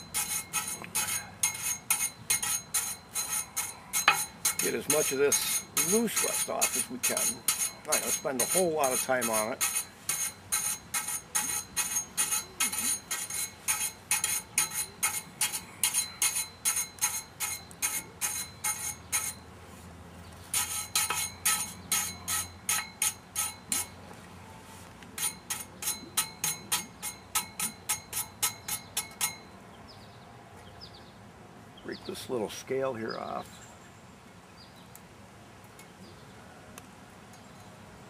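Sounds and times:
wire brush scraping rusty metal: 0.0s - 19.4s, 20.4s - 29.5s.

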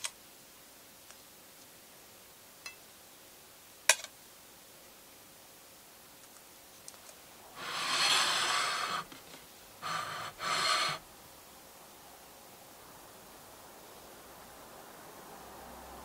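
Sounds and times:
ceramic plate scraping on countertop: 7.6s - 9.2s, 9.8s - 11.0s.

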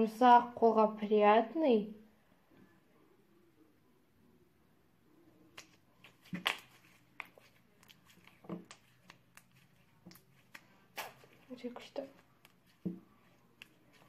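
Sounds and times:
slime squeezed popping: 5.5s - 14.0s.

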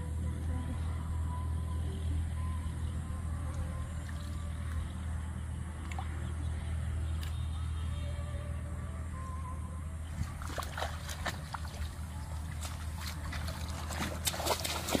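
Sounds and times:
steady low hum: 0.0s - 15.0s
water splashing and sloshing: 3.5s - 7.5s, 10.0s - 15.0s.

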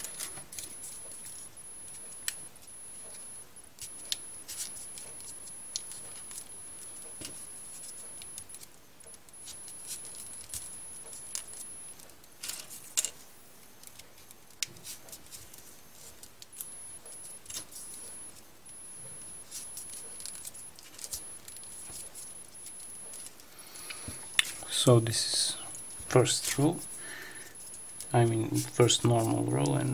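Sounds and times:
paper rustling: 19.4s - 23.4s.

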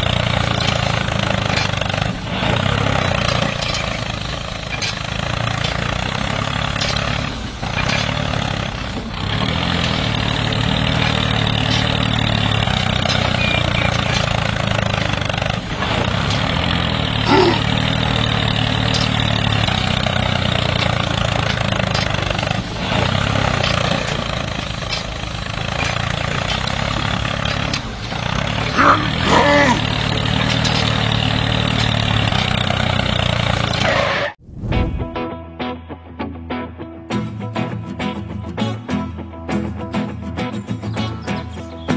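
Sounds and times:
engine running: 0.0s - 35.2s, 40.5s - 41.9s
short squeak: 13.1s - 14.4s.

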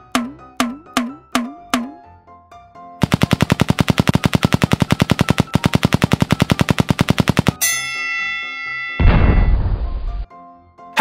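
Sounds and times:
rapid machine-gun rattle effect: 3.0s - 7.6s
ringing bell-like ding: 7.6s - 9.7s.

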